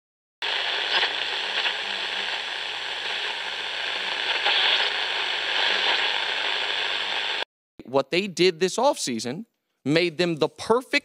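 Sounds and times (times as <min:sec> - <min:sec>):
crackling static hiss: 0:00.4 - 0:07.5.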